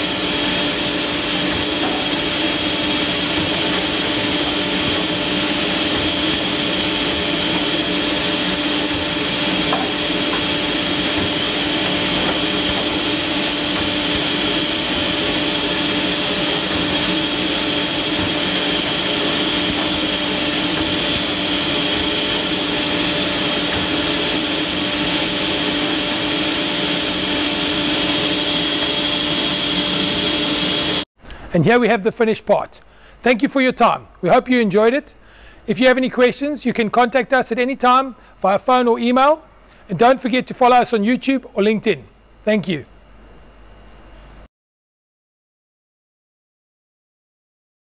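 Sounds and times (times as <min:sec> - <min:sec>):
dust extraction air rushing: 0:00.0 - 0:31.0
machine hum and whine: 0:00.0 - 0:31.5, 0:41.4 - 0:44.5.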